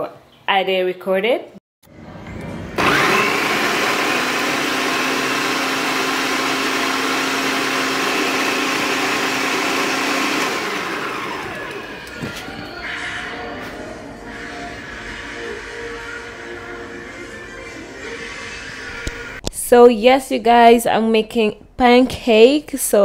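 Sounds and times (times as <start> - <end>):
blender motor grinding oats: 2.8 - 12.4.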